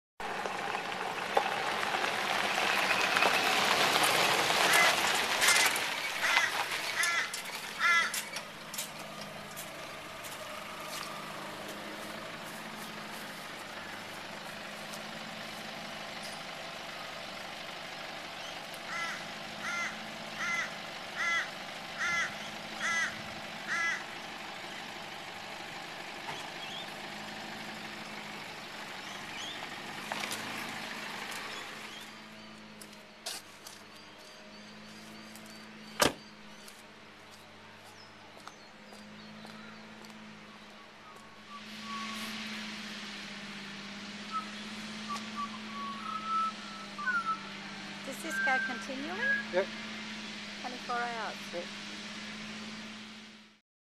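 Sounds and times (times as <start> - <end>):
idling vehicle engine hum: 0.2 - 53.6
crow cawing: 4.7 - 8.3, 18.8 - 24.2.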